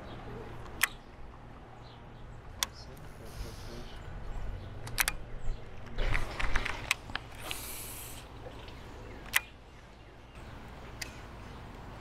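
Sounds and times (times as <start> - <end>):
short hiss: 7.4 - 8.3.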